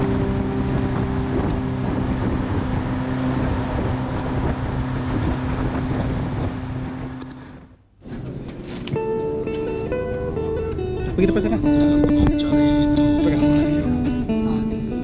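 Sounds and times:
boat engine running: 0.0 - 15.0
wind buffeting microphone: 0.0 - 15.0.

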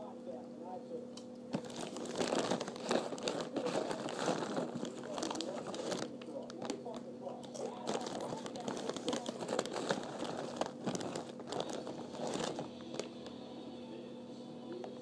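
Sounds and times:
crinkling crackles: 1.5 - 13.4.

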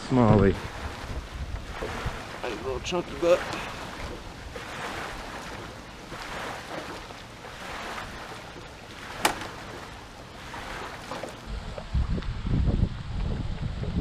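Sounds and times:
wind and lake water rushing: 0.0 - 14.0
sharp knock on boat: 9.0 - 10.0.

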